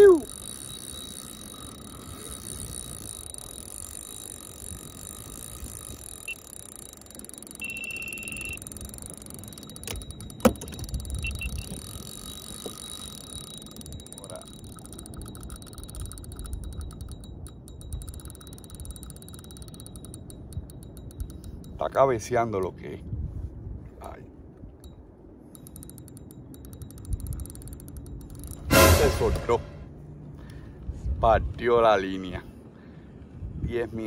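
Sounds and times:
short steady beep: 0:00.0 - 0:21.8, 0:25.6 - 0:29.9
fishing reel clicking: 0:00.0 - 0:22.0, 0:24.8 - 0:29.5
water and wind rumble: 0:00.0 - 0:28.8.

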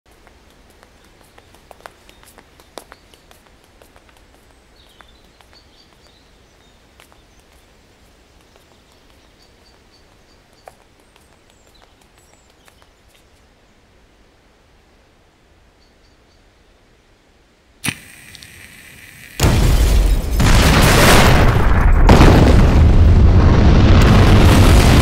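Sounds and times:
distant bird chirps: 0:04.3 - 0:13.8.

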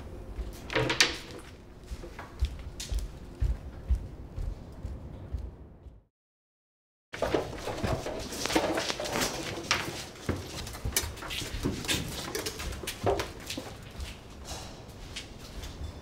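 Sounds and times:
footsteps on stone: 0:01.3 - 0:06.0.

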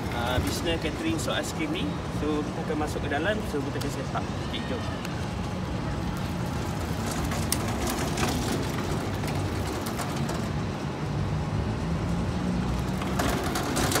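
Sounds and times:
trolley rolling on asphalt: 0:00.0 - 0:14.0.

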